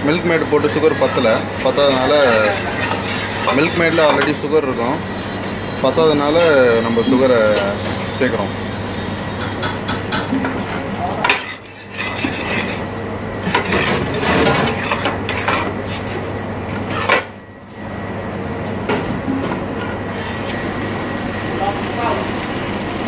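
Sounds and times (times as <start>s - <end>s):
steady low hum: 0.0s - 23.0s
metal spatula scraping steel pot: 0.6s - 4.4s, 10.6s - 16.3s.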